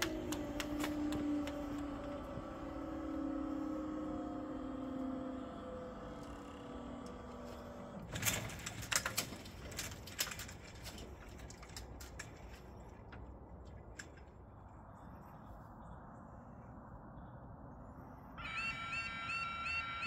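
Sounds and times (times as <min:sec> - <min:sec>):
low steady rumble: 0:00.0 - 0:20.0.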